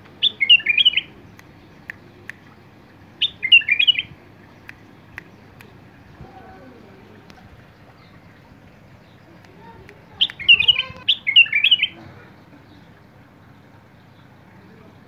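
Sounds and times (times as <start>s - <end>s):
bulbul singing whistled notes: 0.2s - 2.4s, 3.2s - 5.9s, 9.0s - 12.0s.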